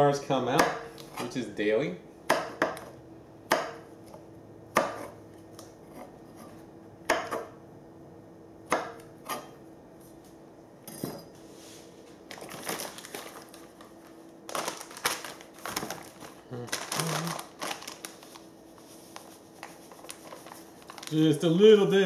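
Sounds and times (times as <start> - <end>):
knife chopping on wooden board: 0.5 - 1.3, 2.3 - 2.9, 3.5 - 5.2, 5.9 - 7.6, 8.7 - 9.6
paper bag rustling: 12.3 - 21.6.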